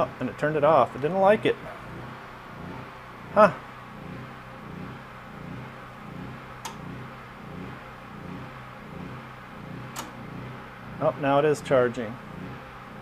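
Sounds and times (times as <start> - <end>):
low machine hum: 0.0 - 13.0
sharp click: 9.9 - 10.2.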